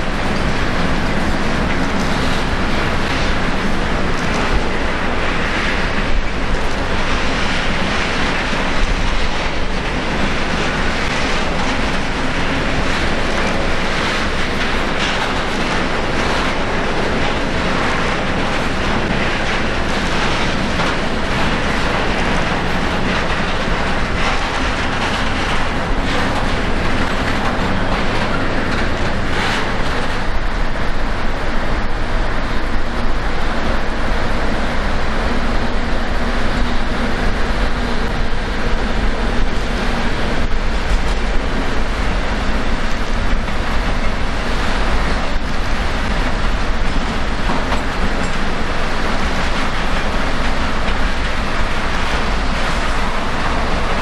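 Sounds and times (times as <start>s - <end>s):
train running on tracks: 0.0s - 54.0s.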